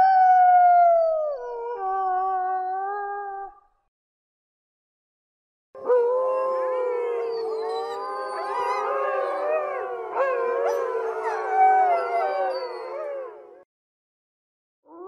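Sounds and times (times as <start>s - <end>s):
wolves howling in chorus: 5.8s - 13.6s.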